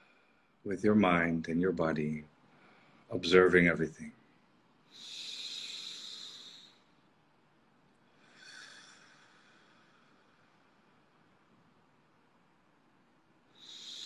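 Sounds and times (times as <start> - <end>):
slow deep breaths: 0.0 - 0.6, 2.4 - 3.1, 4.8 - 11.5, 13.4 - 14.0.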